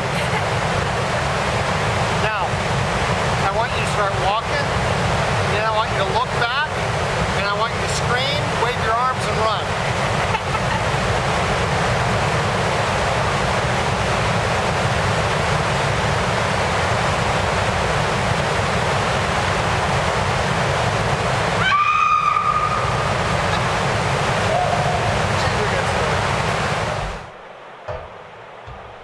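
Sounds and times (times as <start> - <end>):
waterfall roaring: 0.0 - 29.0.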